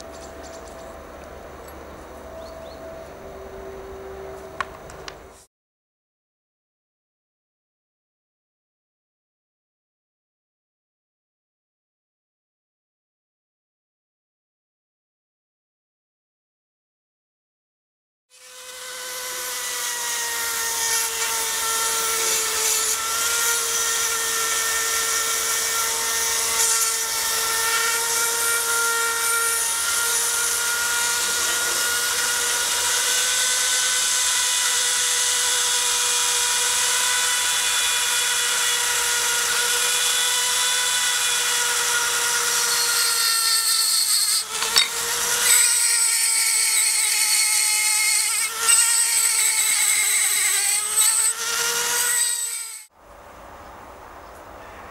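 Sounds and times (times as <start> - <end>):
bit grinding metal: 18.4 - 52.9
rotary tool whining: 18.4 - 52.9.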